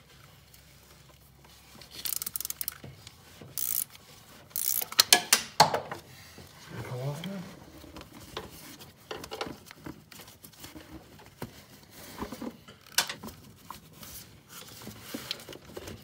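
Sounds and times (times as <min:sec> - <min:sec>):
metal parts clicking and scraping: 0:01.8 - 0:05.4.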